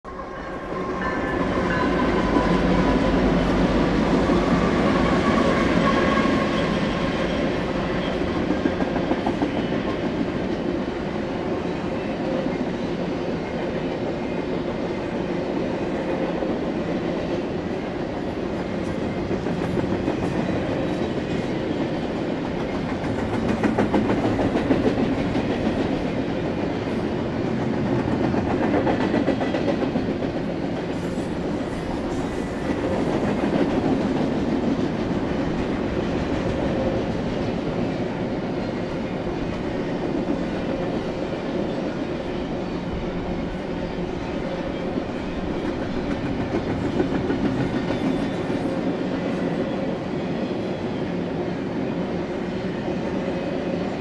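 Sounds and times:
train wheels clacking on rail joints: 18.5 - 41.1, 43.2 - 49.6.

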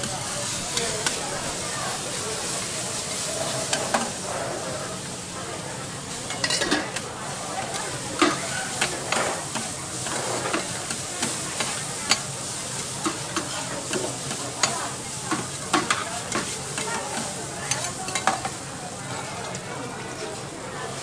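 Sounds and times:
noodles sizzling on a griddle: 0.0 - 21.0
metal spatulas scraping and clacking: 6.3 - 7.0.

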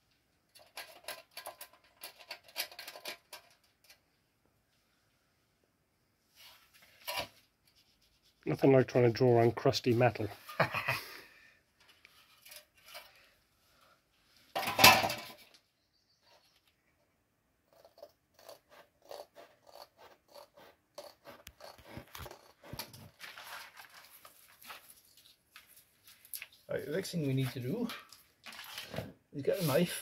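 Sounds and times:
scratchy strokes on cardboard: 17.7 - 23.6
cardboard rustling: 21.8 - 26.7.

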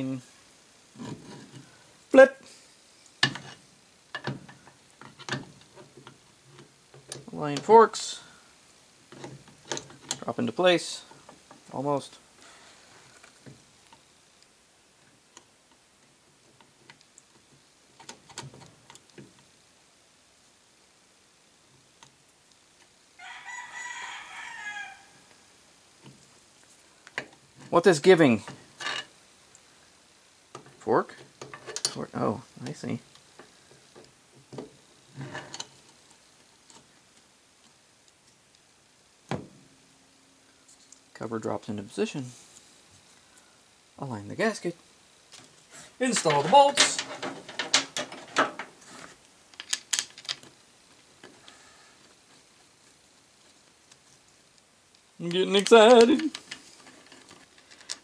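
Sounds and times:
metal rattle: 46.0 - 48.8.

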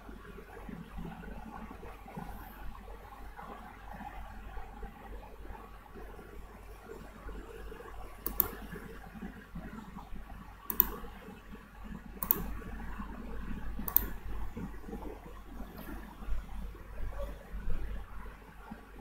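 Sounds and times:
faint low background hum: 0.0 - 19.0
sharp single clicks: 8.3 - 8.6, 10.7 - 11.0, 12.2 - 12.5, 13.9 - 14.2.

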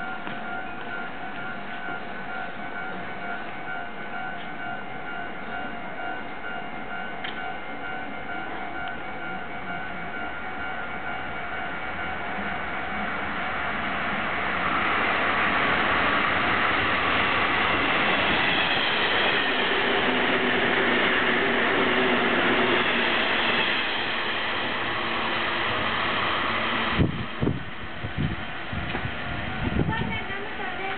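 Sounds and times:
train wheels rushing on rail: 0.0 - 30.9.

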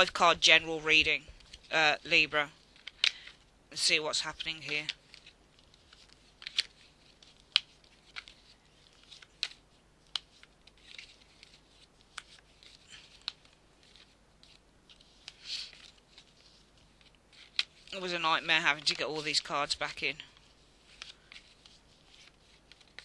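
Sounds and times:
cards clicking and snapping: 2.8 - 3.4, 4.7 - 18.0, 20.4 - 23.0
cards rustling swishes: 4.2 - 19.5, 20.3 - 23.0.

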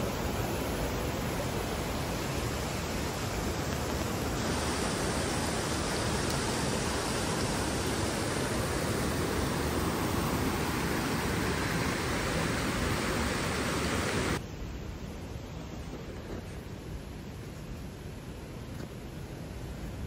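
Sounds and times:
running water rushing: 0.0 - 14.4.

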